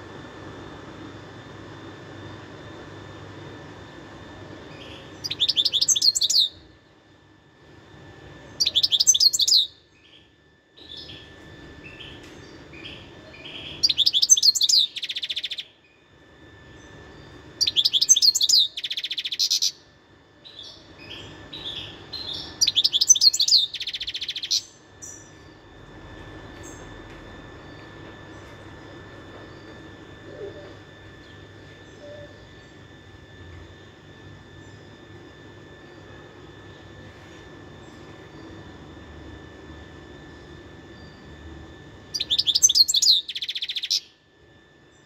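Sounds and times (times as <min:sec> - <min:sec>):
finch twittering song: 0:04.7 - 0:06.6, 0:08.5 - 0:16.0, 0:16.8 - 0:25.6, 0:42.1 - 0:44.2.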